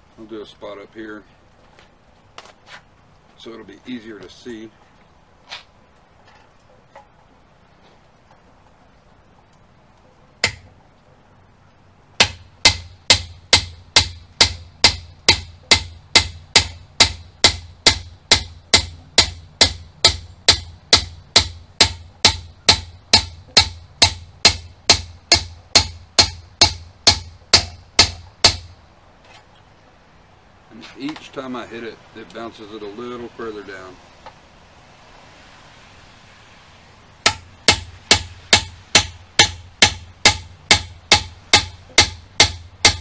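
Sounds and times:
hammer striking metal: 10.4s - 10.7s, 12.2s - 28.8s, 37.2s - 43.0s.

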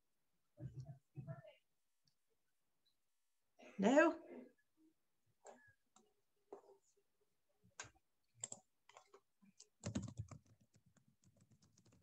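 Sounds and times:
keyboard typing: 7.8s - 12.0s.

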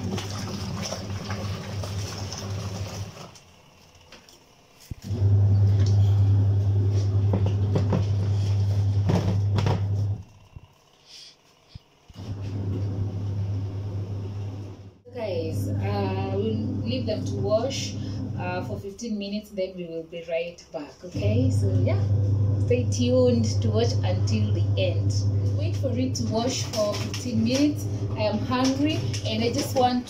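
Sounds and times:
clothes churning in water: 0.0s - 3.5s, 25.3s - 30.0s
washing machine motor humming: 0.0s - 19.7s, 20.4s - 30.0s.

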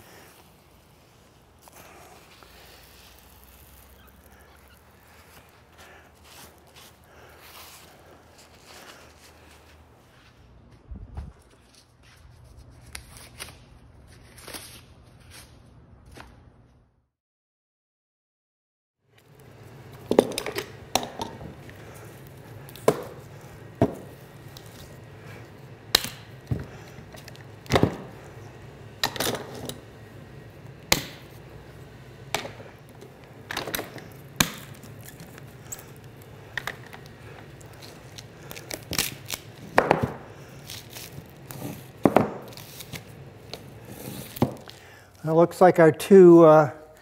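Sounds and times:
steady low hum: 19.2s - 47.0s.

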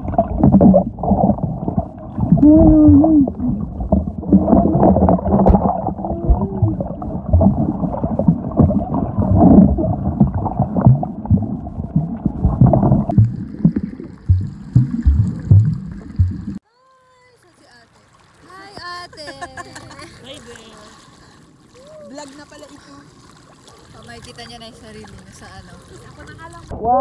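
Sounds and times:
underwater gurgling and sloshing: 0.0s - 16.6s
underwater knocks: 0.0s - 16.6s.

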